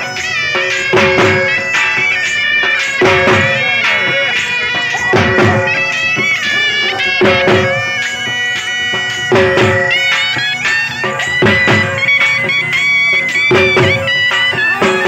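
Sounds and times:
dhol drum beating: 0.0 - 15.0
reed pipe melody over drone: 0.0 - 15.0.

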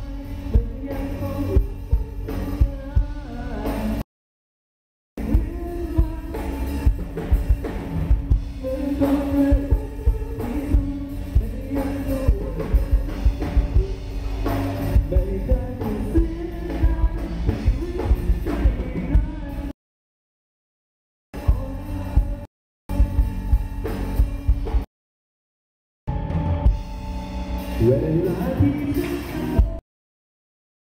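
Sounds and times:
man singing: 0.0 - 4.0, 5.2 - 7.4, 8.6 - 19.8, 21.4 - 23.2, 27.8 - 29.8
rock band playing: 0.0 - 4.0, 5.2 - 19.7, 21.4 - 24.9, 26.1 - 29.8.

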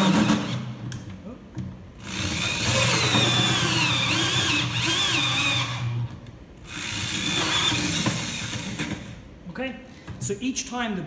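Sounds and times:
power drill hole saw cutting plastic: 2.0 - 6.0, 6.8 - 9.0.

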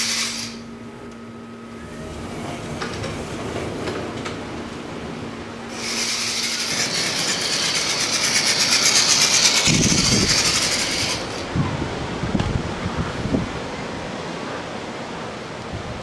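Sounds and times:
toy car motor whirring: 0.0 - 0.6, 5.7 - 11.5
wind buffeting microphone: 2.0 - 14.6.

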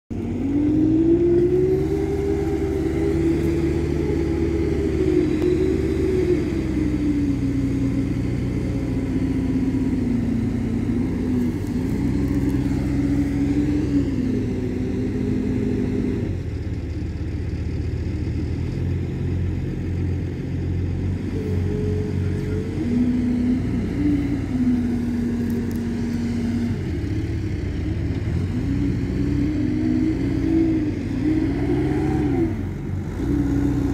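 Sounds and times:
diesel engine revving: 0.1 - 33.9.

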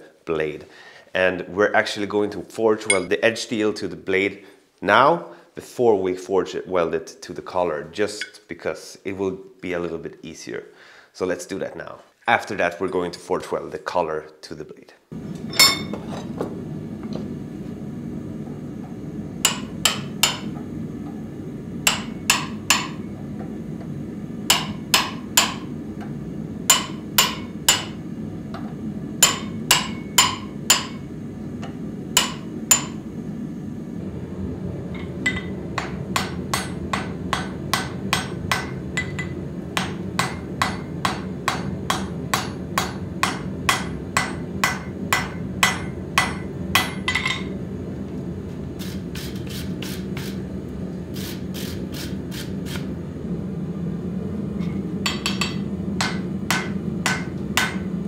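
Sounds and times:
hammer blows on anvil: 2.8 - 3.1, 15.5 - 16.1, 19.4 - 20.6, 21.9 - 23.0, 24.5 - 25.7, 26.7 - 28.0, 29.2 - 31.1, 32.2 - 33.0, 35.0 - 47.5, 54.6 - 57.9
hammer striking hot steel: 15.5 - 16.1, 19.4 - 20.7, 21.8 - 23.1, 24.5 - 26.1, 26.7 - 28.0, 29.2 - 33.0, 35.0 - 47.6, 54.6 - 58.0.

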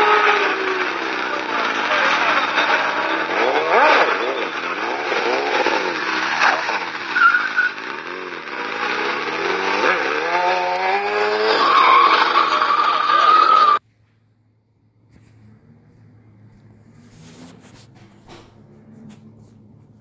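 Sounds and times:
motorcycle engine revving: 0.0 - 13.8, 15.0 - 20.0
tire squeal: 0.0 - 13.8.

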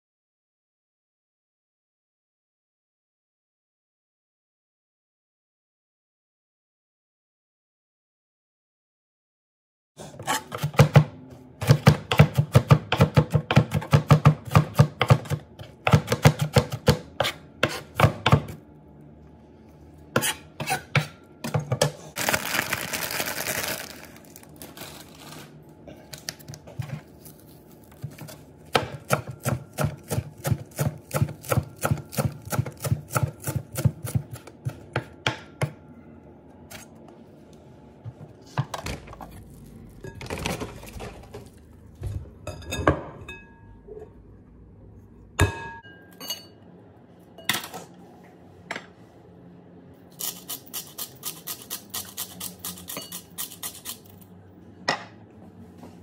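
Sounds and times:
knife chopping on plastic board: 10.4 - 18.6, 28.0 - 35.8.

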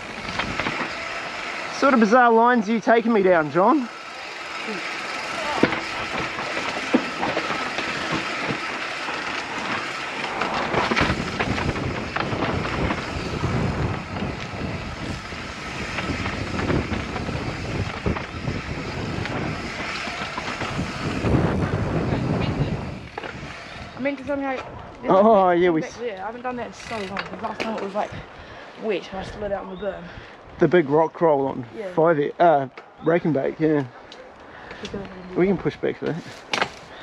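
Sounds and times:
bike knocking and rattling: 0.0 - 25.1, 25.9 - 28.2, 35.6 - 37.0
bike tyres rolling on dirt: 0.0 - 37.0.

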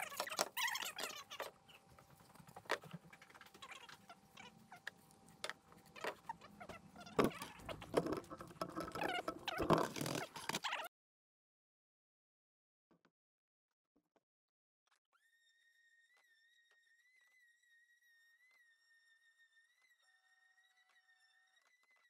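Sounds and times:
plywood scraping: 4.7 - 10.6
wood knocking on wood: 7.0 - 10.6.

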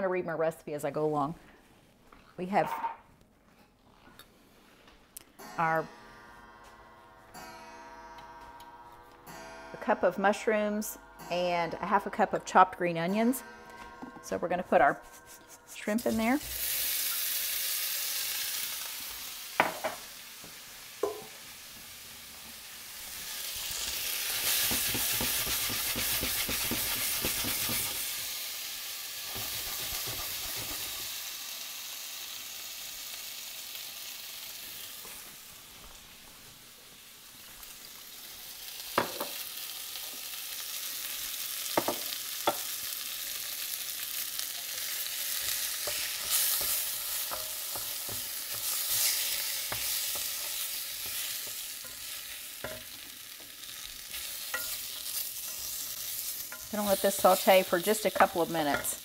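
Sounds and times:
shrimp sizzling in a skillet: 15.4 - 59.0
wooden spoon stirring: 24.4 - 27.9.

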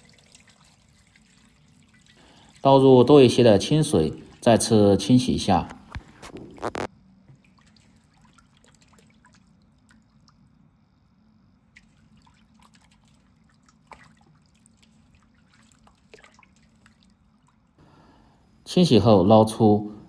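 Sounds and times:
water splashing and dripping: 0.0 - 5.2, 7.3 - 10.7, 11.6 - 17.8.

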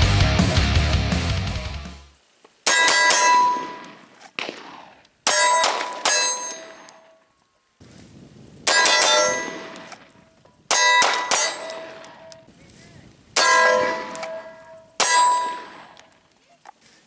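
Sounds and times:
steel target clanging: 2.7 - 4.1, 5.3 - 7.2, 8.7 - 10.1, 10.7 - 12.4, 13.4 - 16.0
gunshots: 2.7 - 6.9, 8.6 - 10.0, 10.7 - 12.3, 13.4 - 16.0.

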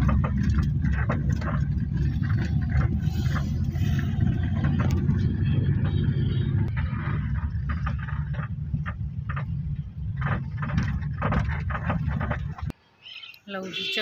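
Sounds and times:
car engine and road rumble: 0.0 - 12.8.

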